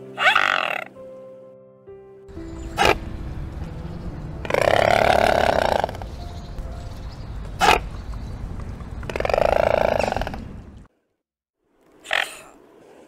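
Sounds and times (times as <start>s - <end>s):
swans calling: 0.0s - 1.0s, 2.3s - 10.9s.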